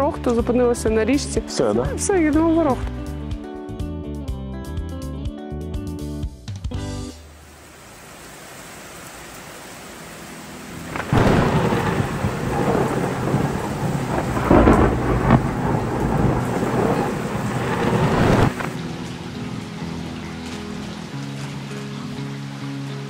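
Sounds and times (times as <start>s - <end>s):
rain falling: 6.8s - 23.0s
thunder cracking and rumbling: 10.8s - 19.1s.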